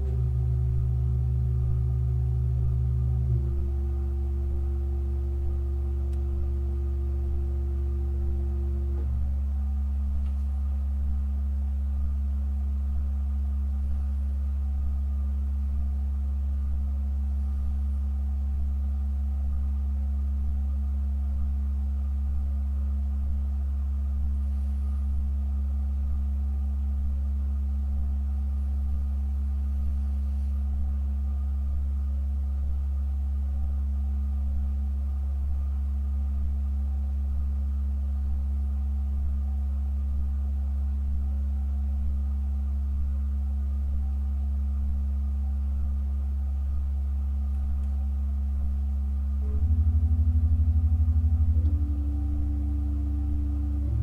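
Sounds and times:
church organ low tone: 0:00.0 - 0:15.7, 0:48.0 - 0:54.0.

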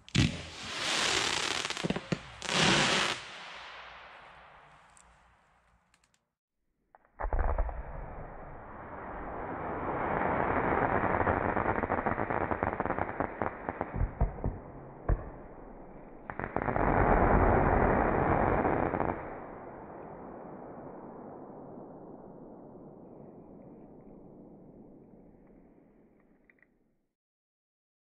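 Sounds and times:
firework crackling: 0:00.0 - 0:06.1, 0:07.3 - 0:25.7
firework hiss: 0:00.1 - 0:04.6, 0:08.8 - 0:14.0
sharp firework bangs: 0:00.1 - 0:04.7.

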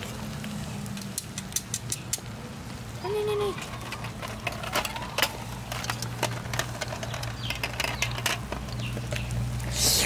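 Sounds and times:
snails crackling and popping on grill: 0:00.0 - 0:10.0
brief hiss: 0:09.7 - 0:10.0.

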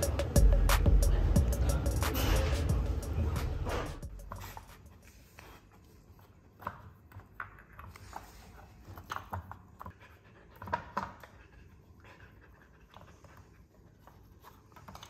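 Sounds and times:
dog sniffing: 0:04.0 - 0:06.8.

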